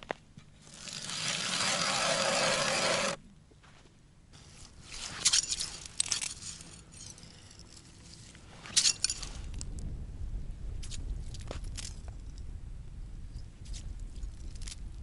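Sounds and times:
metal scoop scraping ice: 0:00.6 - 0:03.2, 0:04.4 - 0:09.5.

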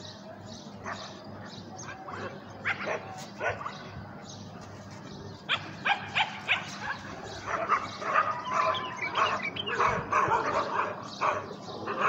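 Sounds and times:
bulbuls calling: 0:00.0 - 0:12.0
bird chattering: 0:05.5 - 0:12.0.

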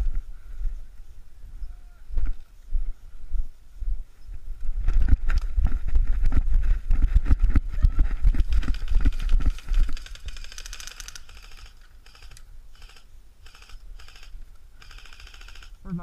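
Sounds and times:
running footsteps through grass: 0:00.0 - 0:12.4
rapid airsoft gunfire clicking: 0:08.4 - 0:15.8.

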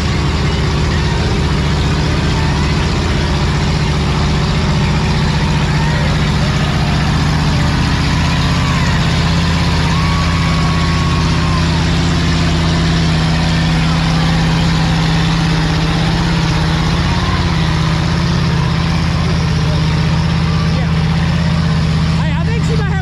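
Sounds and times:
vehicle engine droning: 0:00.0 - 0:23.0.

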